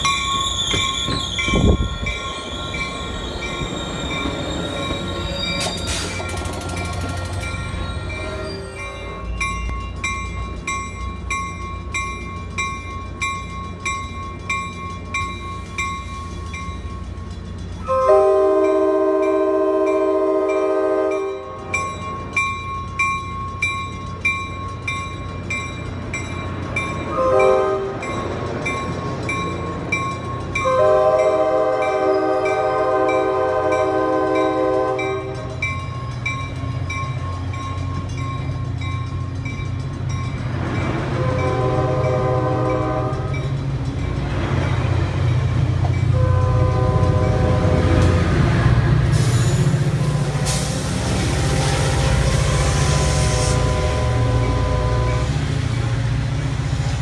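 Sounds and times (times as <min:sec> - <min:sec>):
rumble of rolling train: 0:00.0 - 0:57.0
locomotive horn blasts: 0:17.8 - 0:21.7, 0:27.1 - 0:28.1, 0:30.6 - 0:35.4, 0:41.2 - 0:43.4, 0:46.1 - 0:47.9, 0:51.5 - 0:55.3.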